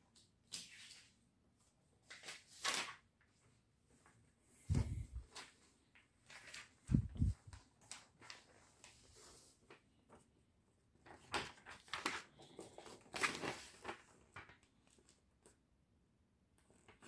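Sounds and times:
paper pages rustling: 0.1s - 15.6s, 16.6s - 17.0s.

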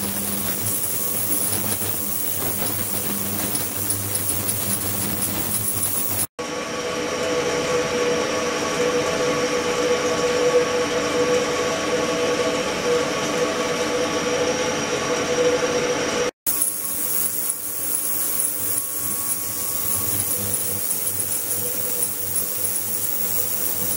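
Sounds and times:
ultrasonic cleaning tank running: 0.0s - 6.3s, 16.5s - 23.9s.

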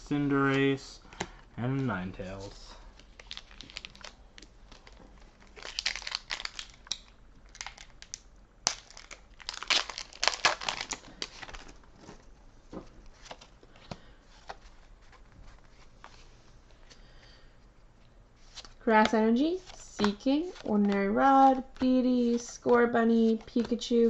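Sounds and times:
cards rustling and clicking: 0.5s - 16.3s, 18.4s - 24.0s
foil pack tearing and crinkling: 5.4s - 11.7s.

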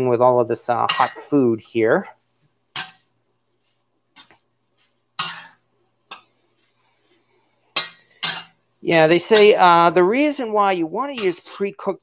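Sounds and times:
spatula scraping cast iron wok: 0.8s - 1.4s, 2.7s - 8.6s, 11.0s - 11.9s.

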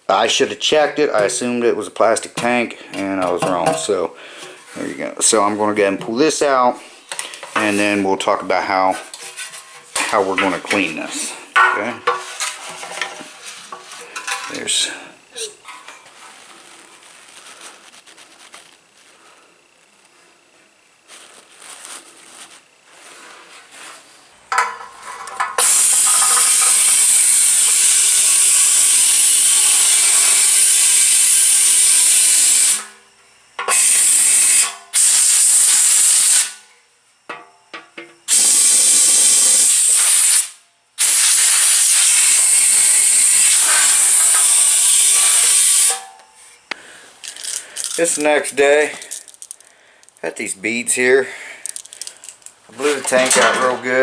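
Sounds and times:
compressed air blow gun hissing: 38.3s - 46.0s.

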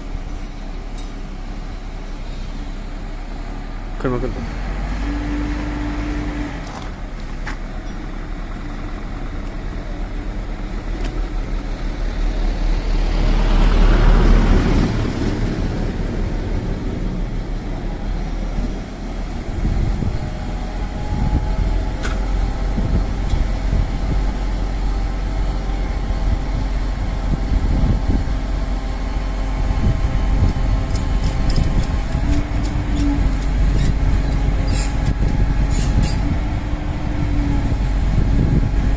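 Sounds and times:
vehicle engine idling: 7.0s - 12.9s
vehicle passing: 12.5s - 17.2s.

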